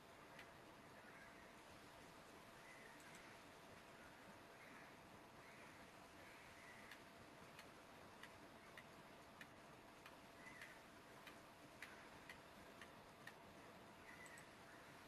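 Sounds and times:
computer mouse clicks: 3.0s - 3.3s, 6.9s - 13.4s, 14.1s - 14.6s.

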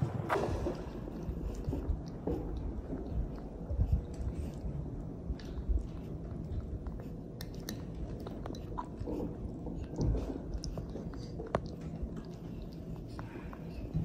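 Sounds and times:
soft low bumps: 0.0s - 7.4s
monkey chewing food: 0.0s - 14.0s.

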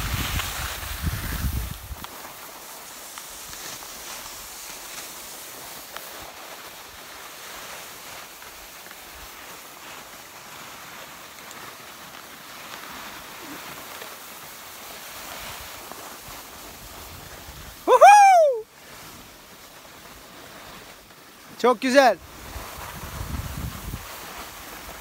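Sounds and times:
wind on microphone: 0.0s - 2.0s, 22.2s - 25.0s
skis sliding over snow: 0.0s - 25.0s.

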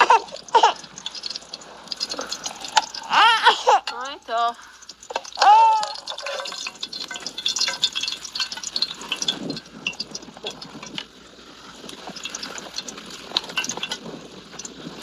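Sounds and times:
metal ladle and cookware clattering: 4.8s - 11.0s, 12.1s - 14.8s.

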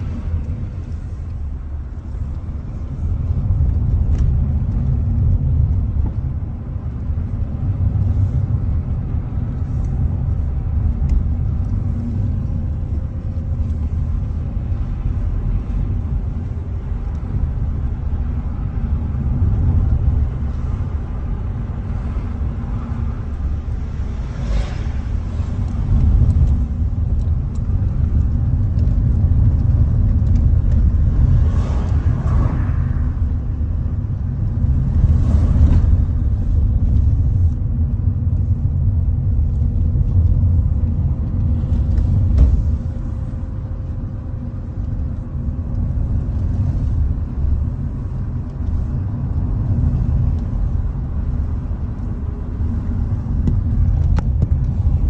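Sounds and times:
car engine and road noise: 0.0s - 55.0s.

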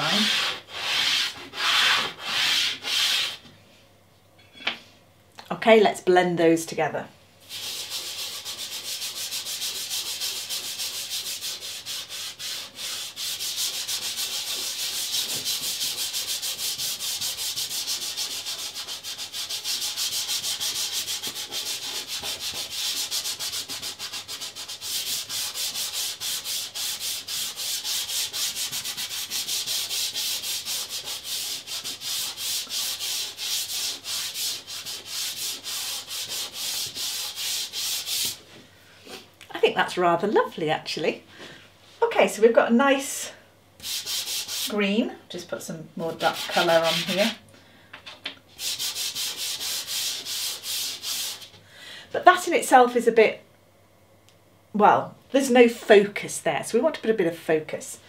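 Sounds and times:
fingers rubbing pastel on paper: 46.2s - 47.4s.

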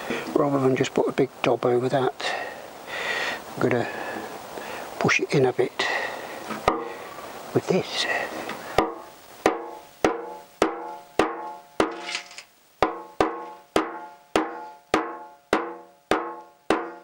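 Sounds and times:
hammer tapping steel tank: 6.5s - 6.9s, 8.8s - 12.0s, 12.8s - 17.0s.

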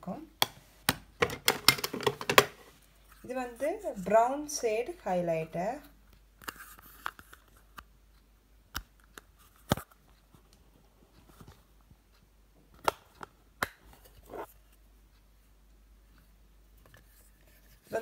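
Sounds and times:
plastic clicks and taps: 0.4s - 2.6s.

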